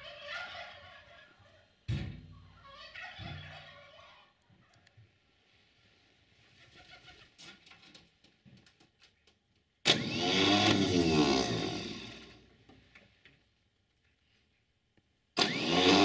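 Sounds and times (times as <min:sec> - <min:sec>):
tractor starter motor cranking: 0:09.8 - 0:12.5, 0:15.4 - 0:16.0.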